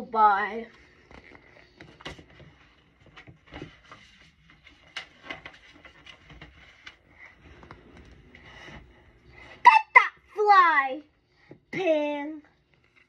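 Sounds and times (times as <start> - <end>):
book pages turning: 0.6 - 8.9, 12.6 - 13.0.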